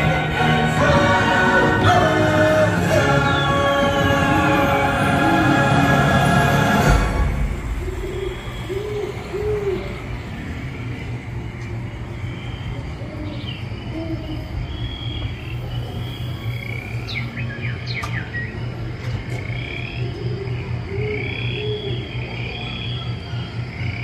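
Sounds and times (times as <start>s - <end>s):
soft music: 0.0s - 8.0s
steady low hum: 0.0s - 24.0s
bird chirps and gliding calls: 2.8s - 4.7s, 7.6s - 24.0s.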